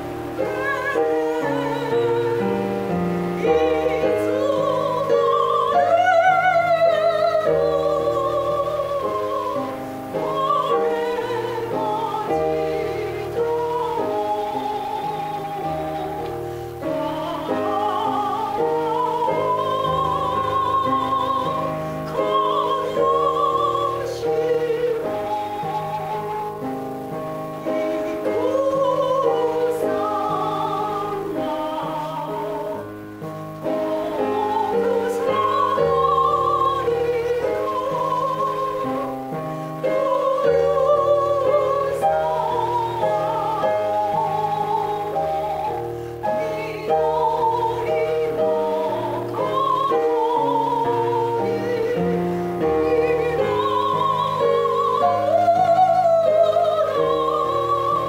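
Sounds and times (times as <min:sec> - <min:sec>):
woman singing operatically: 0:00.0 - 0:58.0.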